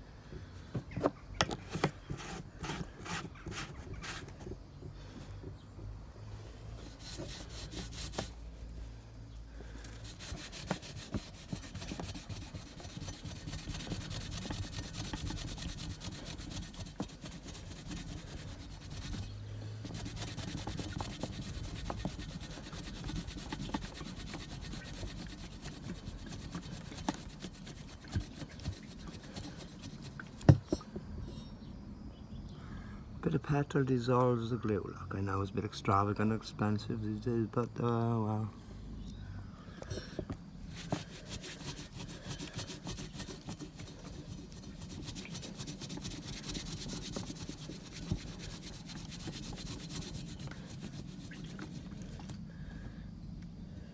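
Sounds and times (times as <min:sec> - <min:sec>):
rag rubbing on steel tube: 0:06.7 - 0:08.4, 0:09.8 - 0:30.7, 0:40.6 - 0:52.2.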